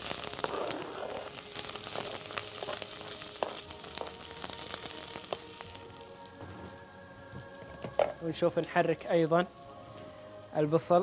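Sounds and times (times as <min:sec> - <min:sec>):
onion sizzling in hot oil: 0:00.0 - 0:06.9.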